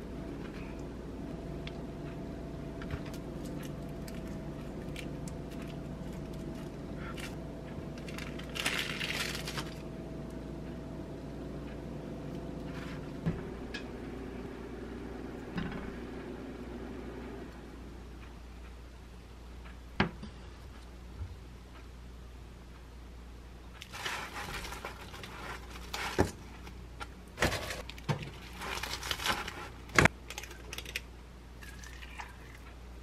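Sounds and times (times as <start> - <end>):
steady background hum: 0.0 - 33.0
plastic wrapper crinkle: 8.0 - 9.8, 23.8 - 26.8, 27.7 - 31.0.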